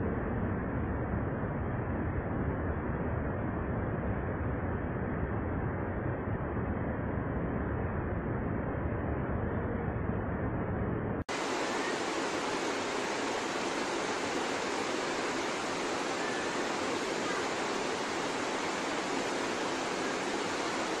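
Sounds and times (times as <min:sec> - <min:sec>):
river rapids rushing: 0:11.3 - 0:21.0.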